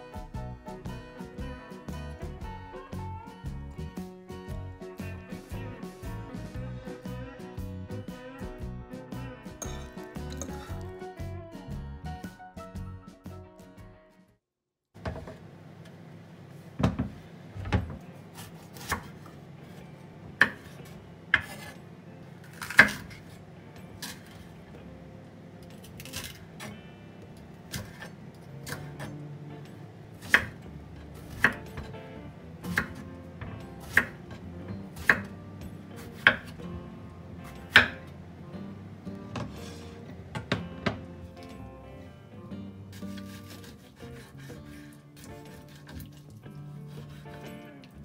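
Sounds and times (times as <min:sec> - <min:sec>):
background music: 0:00.0 - 0:14.3, 0:18.7 - 0:48.0
knife chopping on wooden board: 0:18.4 - 0:19.3, 0:20.4 - 0:21.8, 0:22.5 - 0:23.3, 0:30.2 - 0:30.6, 0:31.2 - 0:32.0, 0:32.6 - 0:35.3, 0:36.0 - 0:36.6, 0:37.5 - 0:38.0, 0:42.9 - 0:46.2.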